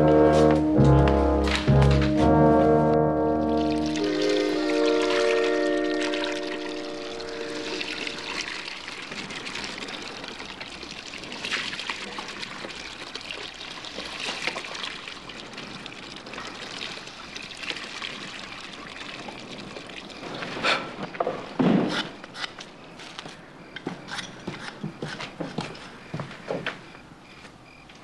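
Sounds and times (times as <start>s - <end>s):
water pouring into bucket: 3.4s - 20.6s.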